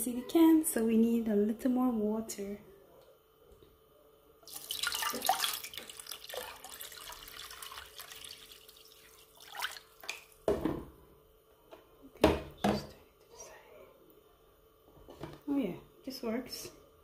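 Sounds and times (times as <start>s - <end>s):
water pouring into metal pot: 4.4s - 10.3s.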